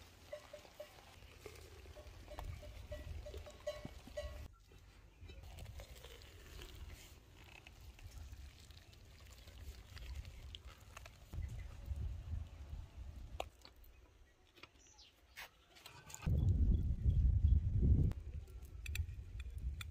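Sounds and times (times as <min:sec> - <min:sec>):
wind rumble on microphone: 0:11.4 - 0:13.4, 0:16.3 - 0:19.9.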